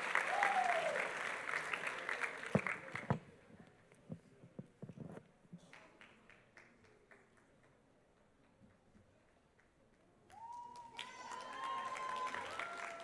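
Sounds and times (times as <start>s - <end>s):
audience applause: 0.0s - 3.1s, 10.3s - 13.0s.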